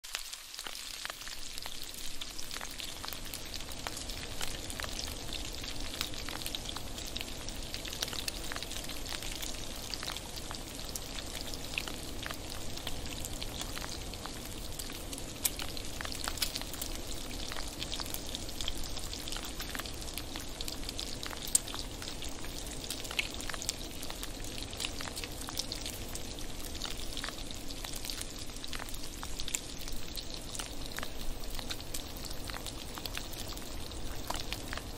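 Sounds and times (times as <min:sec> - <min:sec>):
bacon sizzling in a frying pan: 0:00.0 - 0:34.9
fat popping and crackling: 0:13.6 - 0:26.0.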